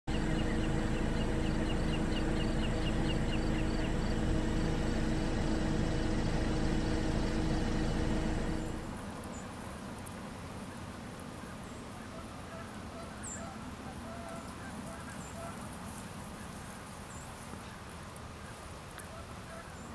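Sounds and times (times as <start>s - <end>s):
low drone: 0.1s - 9.2s.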